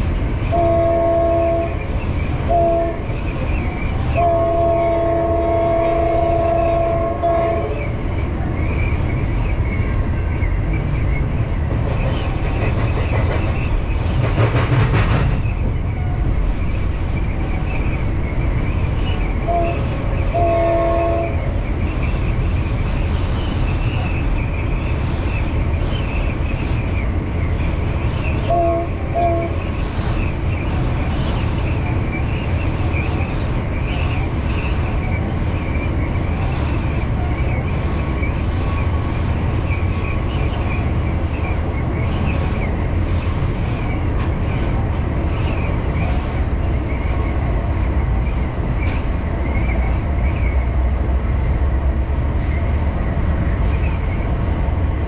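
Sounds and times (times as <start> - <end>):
diesel train rumbling: 0.0 - 55.0
locomotive horn blasts: 0.5 - 1.8, 2.5 - 3.1, 4.2 - 7.8, 19.4 - 21.4, 28.5 - 29.6.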